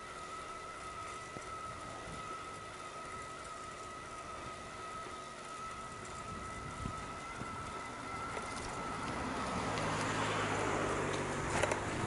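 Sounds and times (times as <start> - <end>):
thin high tone: 0.0 - 10.8
vehicle driving past: 5.6 - 12.0.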